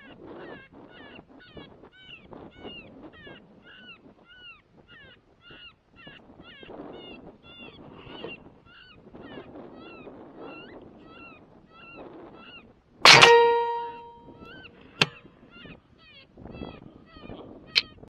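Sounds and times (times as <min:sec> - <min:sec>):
rifle shot ringing: 0:13.1 - 0:14.3.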